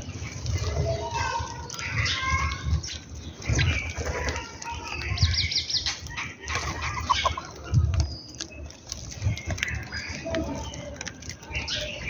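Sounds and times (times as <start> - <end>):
sparrows chirping: 0.0 - 12.0
dove wings flapping: 2.5 - 12.0.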